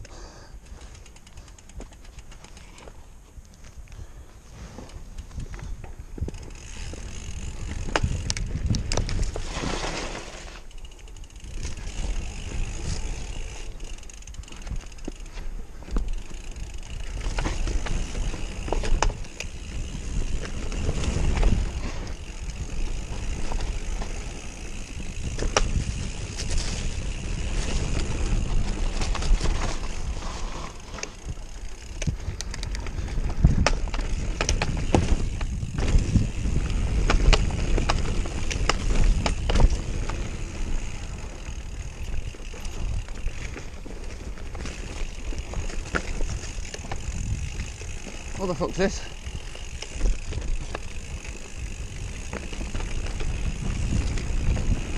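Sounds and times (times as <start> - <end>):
bike rattling over bumps: 0.0 - 54.9
tyres rumbling on dirt: 6.3 - 10.7.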